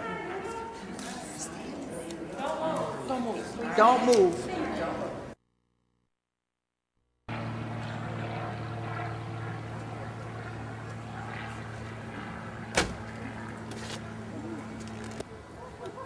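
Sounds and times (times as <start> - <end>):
low engine-like hum: 7.3 - 16.0.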